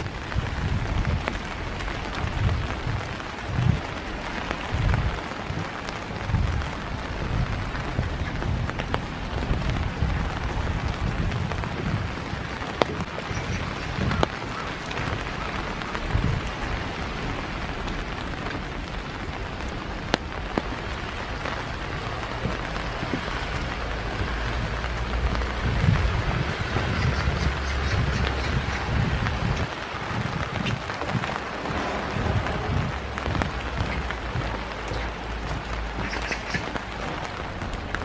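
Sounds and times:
raindrops ticking: 0.0 - 38.0
steady rain falling: 0.0 - 38.0
low rumble: 20.3 - 38.0.

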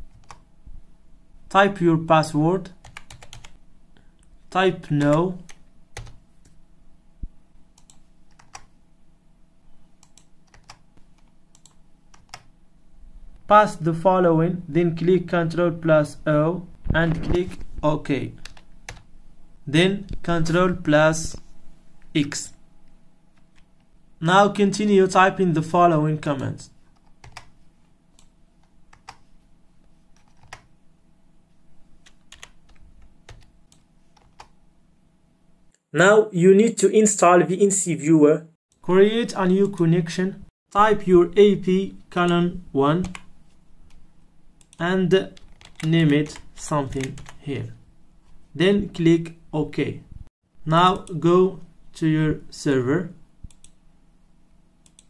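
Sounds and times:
faint steady hum: 0.0 - 55.0
keyboard typing clicks: 0.1 - 0.4, 2.8 - 3.6, 7.8 - 8.7, 10.0 - 12.5, 30.2 - 30.7, 32.0 - 34.5, 44.6 - 47.4, 53.5 - 53.8.

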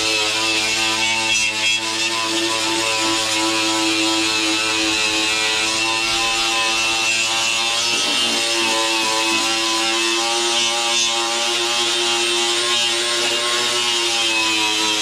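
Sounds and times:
grinder motor whine: 0.0 - 15.0.

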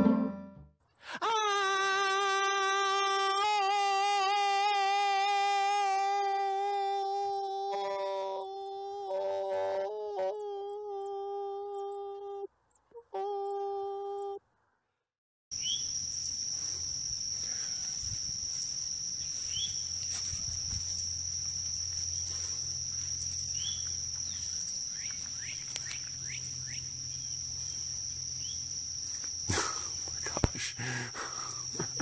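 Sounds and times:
high insect drone: 1.2 - 12.4, 15.5 - 32.0
short insect chirps: 15.5 - 32.0.

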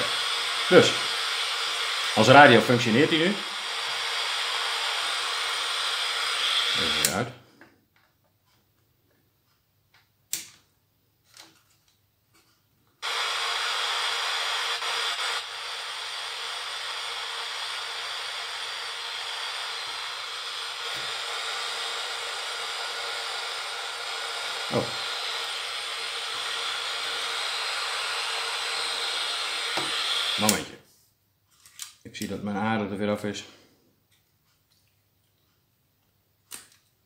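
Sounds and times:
radio static hiss: 0.0 - 7.4, 13.0 - 30.8.

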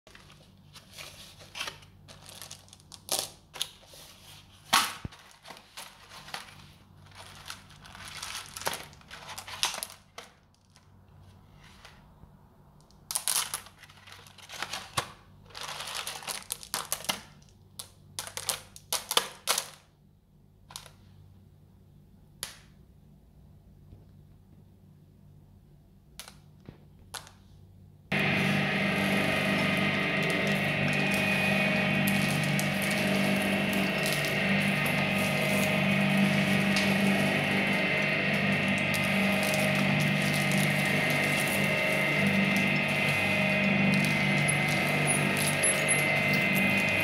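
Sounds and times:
meat grinder crunching candies: 28.1 - 47.0.

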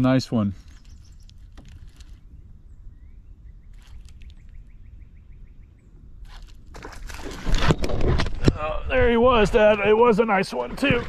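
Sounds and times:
low wind rumble: 0.0 - 11.0
bird chirping: 0.6 - 6.4.

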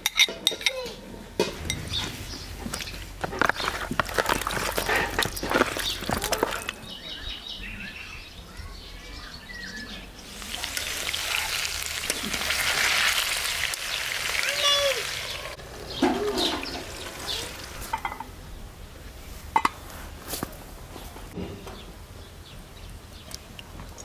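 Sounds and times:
hands kneading wet chicken: 2.6 - 6.9
potatoes sizzling in oil: 10.2 - 18.0.

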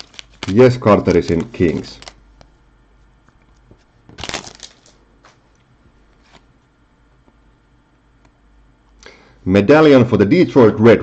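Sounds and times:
trading cards rustling and sliding: 0.0 - 2.2, 3.6 - 5.4, 6.2 - 6.5.

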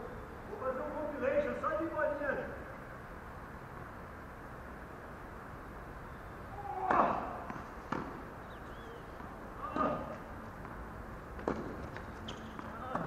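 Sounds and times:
tennis ball bouncing on court: 6.8 - 13.0.

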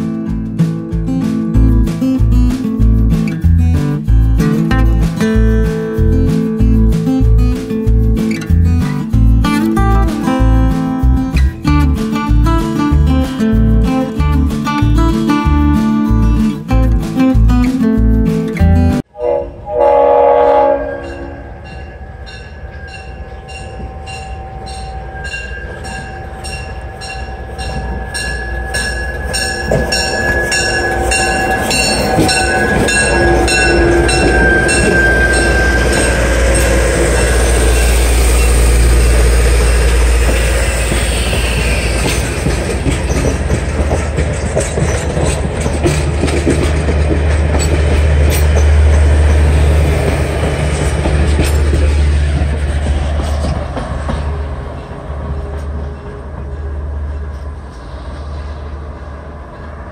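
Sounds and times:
locomotive engine rumbling: 0.0 - 59.9
locomotive horn blast: 19.1 - 21.8, 28.5 - 40.2
locomotive bell ringing: 20.4 - 57.5
wheel flange squeal: 20.6 - 58.8
train wheels clattering: 21.0 - 58.6.

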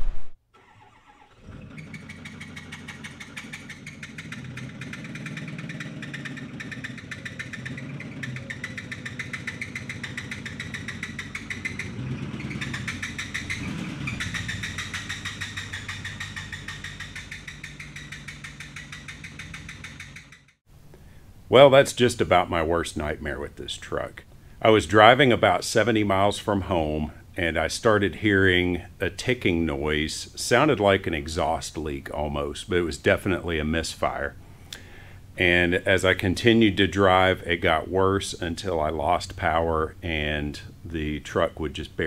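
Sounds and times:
diesel truck engine running: 0.0 - 20.6
rapid engine ticking: 0.6 - 20.6.

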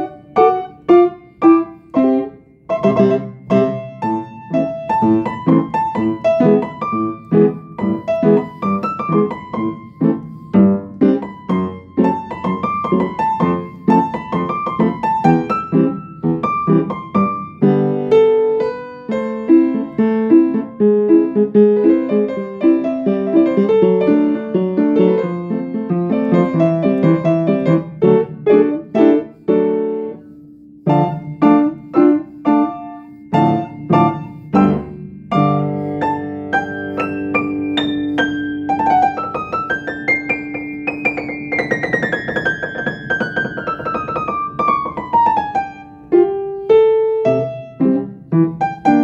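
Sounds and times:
solo piano playing: 0.0 - 49.0.

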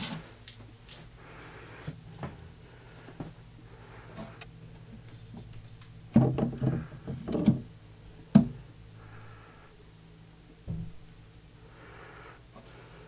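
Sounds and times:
handling knocks and bumps: 6.1 - 7.7.

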